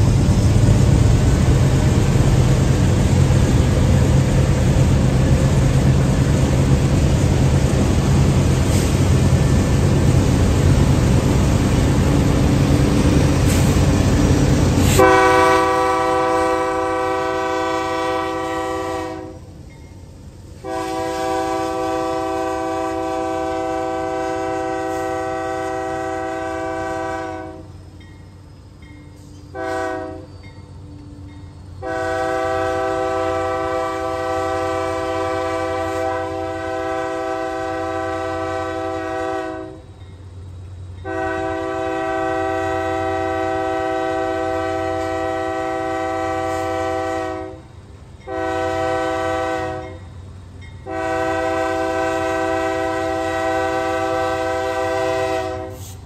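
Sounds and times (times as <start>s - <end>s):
diesel locomotive rumble: 0.0s - 56.0s
locomotive air horn blasts: 14.8s - 19.4s, 20.6s - 27.7s, 29.5s - 30.3s, 31.8s - 39.9s, 41.0s - 47.6s, 48.2s - 50.1s, 50.8s - 56.0s.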